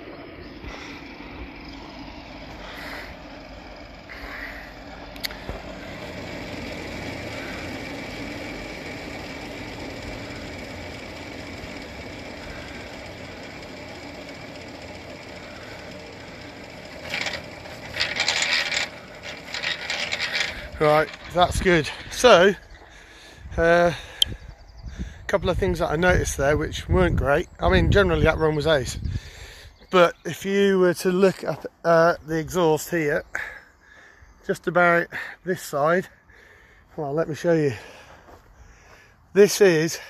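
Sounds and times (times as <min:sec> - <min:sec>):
mechanical hum: 0:00.0 - 0:30.7
loud rustling bumps: 0:05.4 - 0:23.5.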